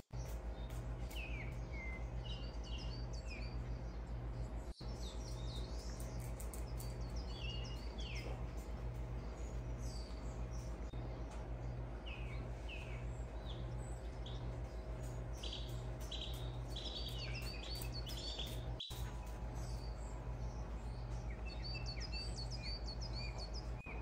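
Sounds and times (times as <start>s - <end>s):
pulsing low hum: 0.0s - 24.0s
small birds chirping: 0.0s - 24.0s.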